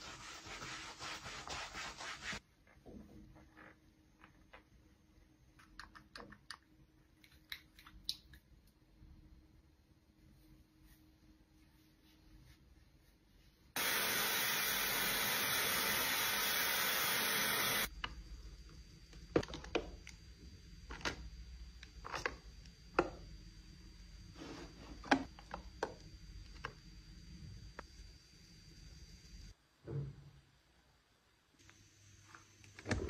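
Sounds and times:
hair dryer blowing: 13.8 - 17.9.

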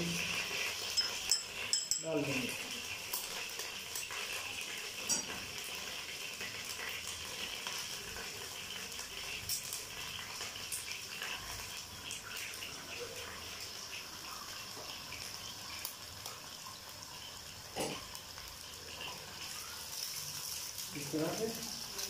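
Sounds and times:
eggs sizzling in oil: 0.0 - 22.0
oil crackling and popping: 0.0 - 22.0.

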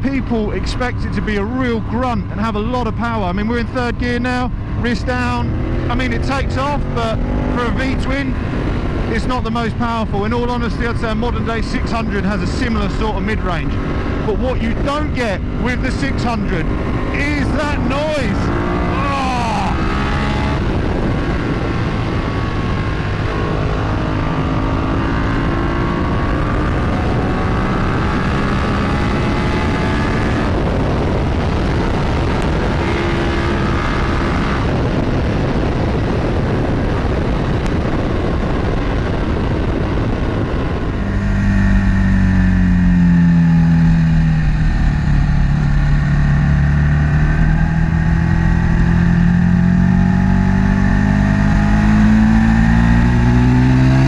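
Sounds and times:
motorcycle engine revving: 0.0 - 54.0
wind rushing: 6.8 - 54.0.

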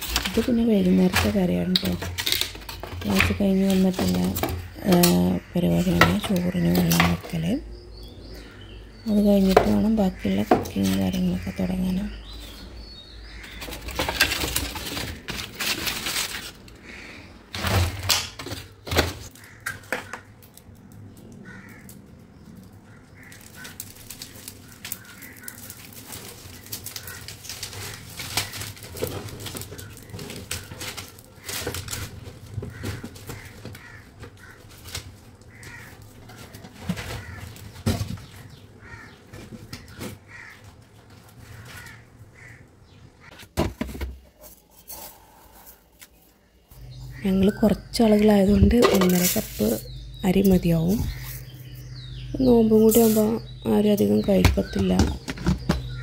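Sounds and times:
wood fire crackling: 0.0 - 43.3
crows cawing: 13.2 - 13.9, 16.8 - 17.5, 19.3 - 20.5, 21.4 - 22.0, 22.8 - 29.0, 29.6 - 37.8, 38.4 - 43.4, 55.1 - 56.0
newspaper rustling: 13.6 - 17.0, 23.2 - 39.0
firewood knocking: 54.2 - 56.0.

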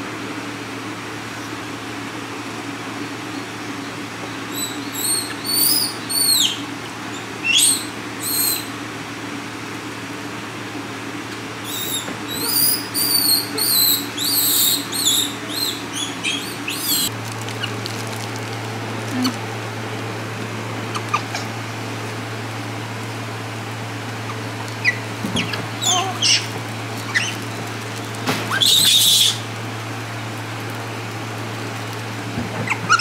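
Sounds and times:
high-pitched animal chirps: 4.5 - 6.6, 7.4 - 8.7, 11.7 - 17.1, 20.9 - 21.5, 24.3 - 26.5, 28.6 - 29.4, 32.7 - 33.0.

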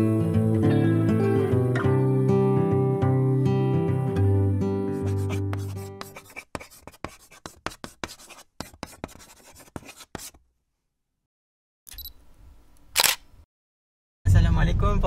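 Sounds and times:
pen scratching on paper: 4.9 - 10.4.

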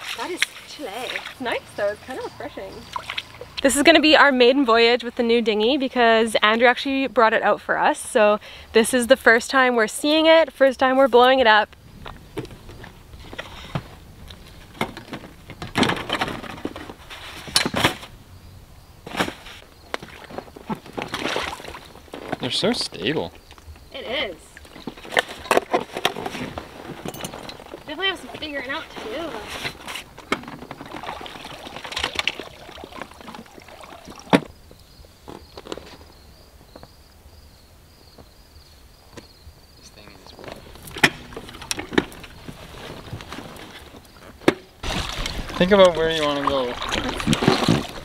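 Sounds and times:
light water sounds: 2.8 - 3.6, 30.7 - 34.5, 44.8 - 48.0.

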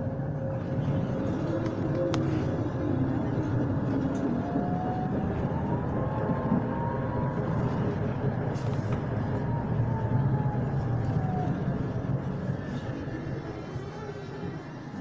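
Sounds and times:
tram wheels rumbling: 0.0 - 15.0.

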